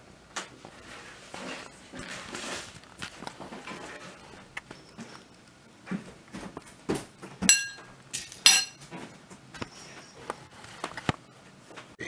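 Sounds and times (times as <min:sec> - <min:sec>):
spoon clinking in ceramic bowl: 0:07.5 - 0:08.8
spoon knocking in bowl: 0:07.5 - 0:08.8.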